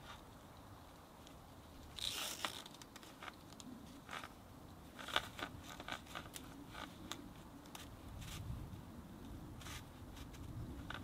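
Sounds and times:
strap rasping through buckle: 1.8s - 8.5s, 9.6s - 11.0s.

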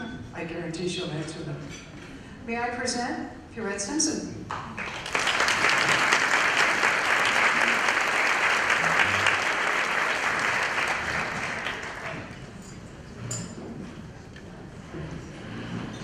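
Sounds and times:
audience applauding: 4.5s - 12.5s.

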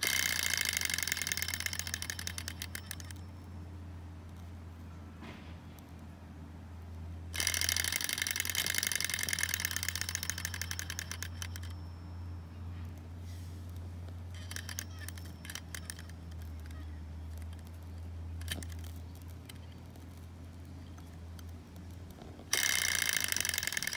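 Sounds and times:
flywheel and linkage clicking: 0.0s - 3.4s, 7.4s - 11.8s, 13.6s - 23.9s.

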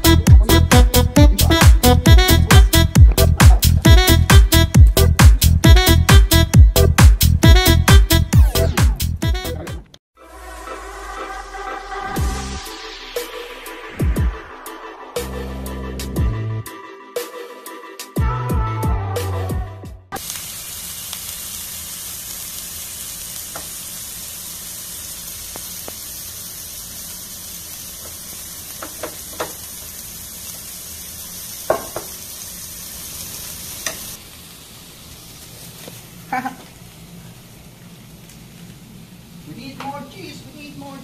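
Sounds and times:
electronic music: 0.0s - 20.2s
burger patty sizzling on grill pan: 20.2s - 39.6s.

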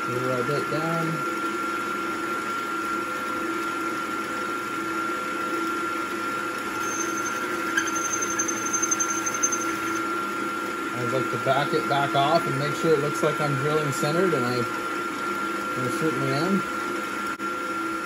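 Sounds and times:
drill spindle humming: 6.6s - 13.1s
drill bit cutting metal: 6.7s - 10.1s.

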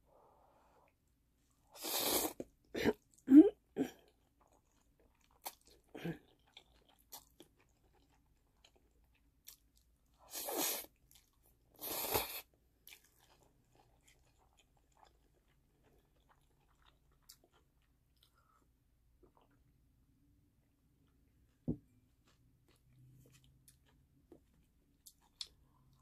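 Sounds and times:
soft wet chewing: 2.4s - 26.0s
slurping noodles: 11.8s - 12.5s.

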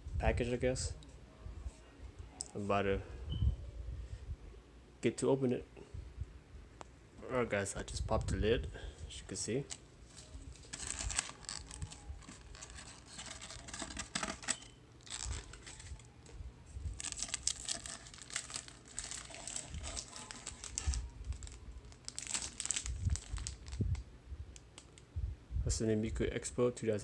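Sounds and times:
crumpled paper crinkling: 9.6s - 23.9s.

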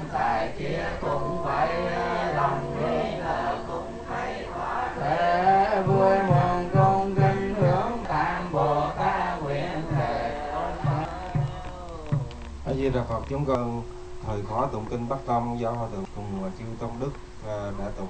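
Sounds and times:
men chanting in unison: 0.0s - 12.8s.

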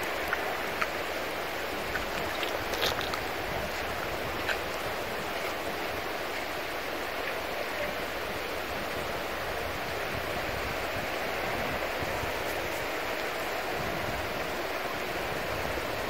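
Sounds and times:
water swishing in a pan: 0.0s - 6.5s.

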